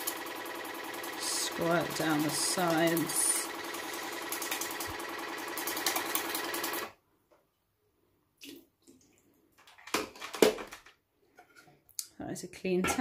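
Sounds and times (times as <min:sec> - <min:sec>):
water flosser pump buzzing: 0:00.0 - 0:06.9.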